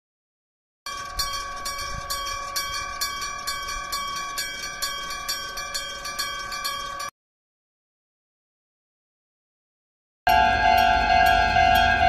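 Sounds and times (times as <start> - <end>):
level-crossing bell ringing: 0.9 - 7.1, 10.3 - 12.0.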